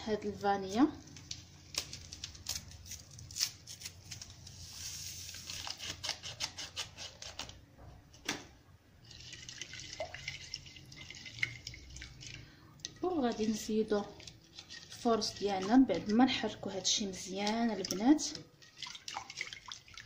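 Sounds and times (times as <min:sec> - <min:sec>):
paper packet opening: 0:01.1 - 0:07.6.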